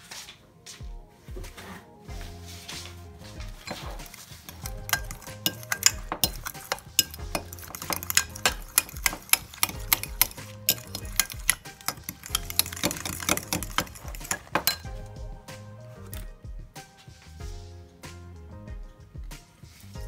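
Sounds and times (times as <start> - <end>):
background music: 0.0 - 20.0
metal utensil clinking dish: 3.4 - 15.0.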